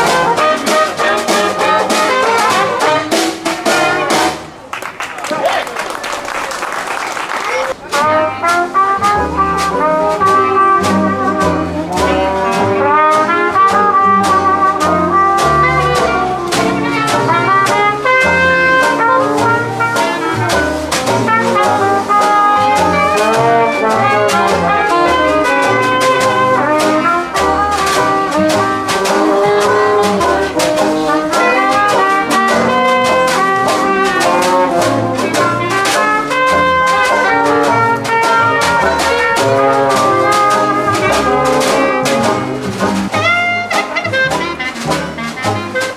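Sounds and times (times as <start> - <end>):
brass band playing jazz: 0.0 - 45.9
audience applause: 4.6 - 7.8.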